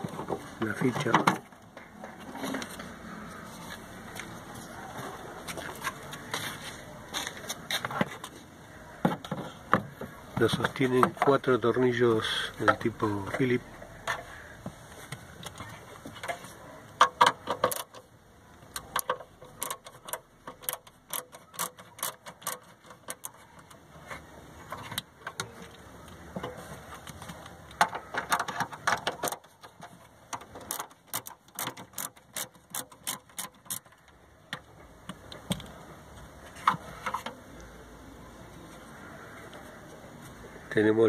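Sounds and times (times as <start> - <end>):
plastic parts clicking: 15.2 - 35.8.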